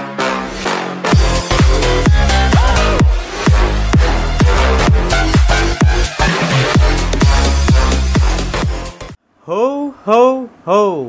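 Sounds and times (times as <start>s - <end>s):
electronic dance music: 0.0s - 9.2s
deep kick drums: 1.1s - 9.0s.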